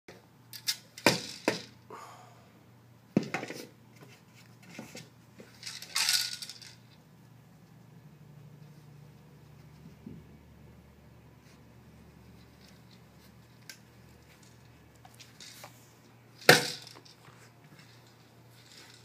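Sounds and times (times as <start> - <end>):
kibble rattling in plastic cube: 5.5 - 7.0.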